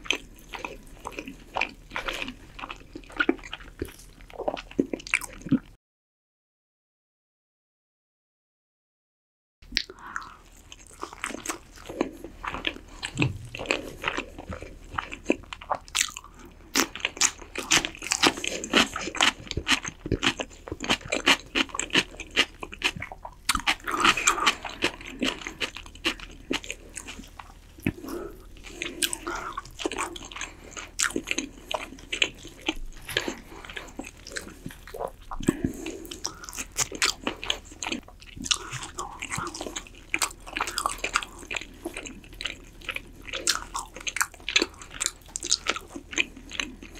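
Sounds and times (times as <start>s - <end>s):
wet chewing and crunching: 0.0s - 5.8s, 9.7s - 46.9s.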